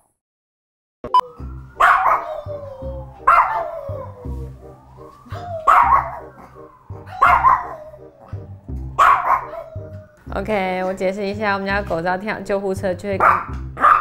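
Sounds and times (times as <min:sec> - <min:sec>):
ambulance siren: 0:01.1 - 0:12.3
dog howling: 0:01.2 - 0:10.3.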